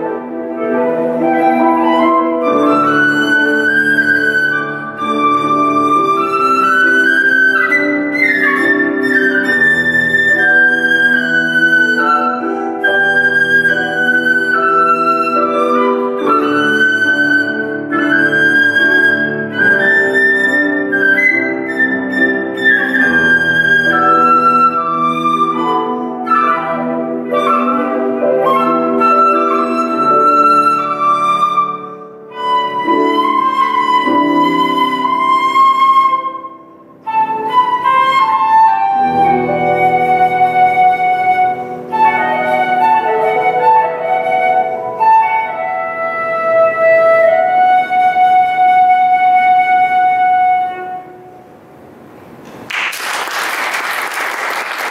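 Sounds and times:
concert flute: 0:00.0 - 0:52.0
grand piano accompaniment: 0:00.0 - 0:54.9
applause: 0:52.5 - 0:54.9.

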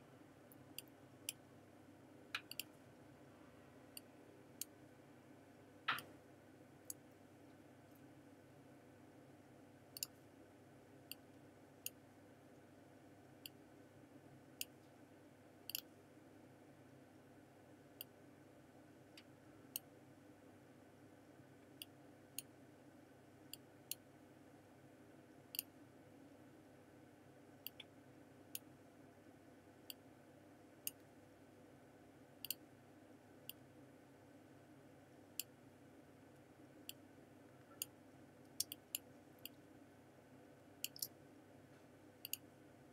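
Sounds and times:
faint room hum: 0:00.0 - 0:42.9
computer mouse clicking: 0:02.4 - 0:02.7, 0:15.7 - 0:15.9, 0:32.4 - 0:32.6, 0:38.5 - 0:39.6, 0:40.8 - 0:41.1, 0:42.2 - 0:42.4.

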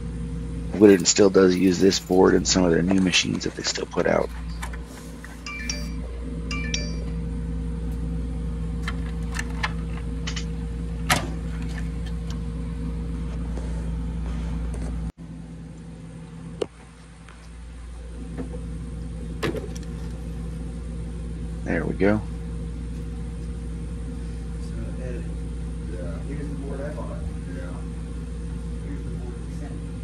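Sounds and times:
low machine hum: 0:00.0 - 0:30.0.

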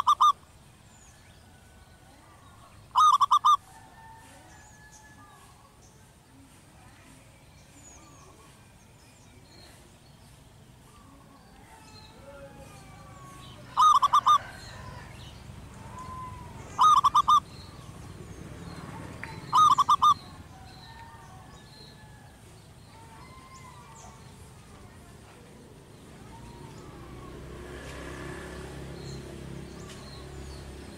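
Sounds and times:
dove cooing: 0:00.0 - 0:00.4, 0:02.8 - 0:03.9, 0:12.1 - 0:22.2.

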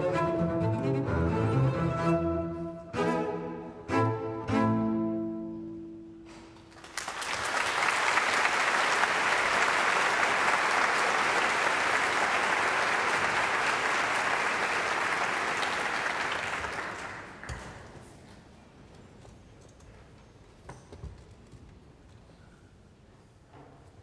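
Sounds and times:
audience applause: 0:06.7 - 0:17.8.

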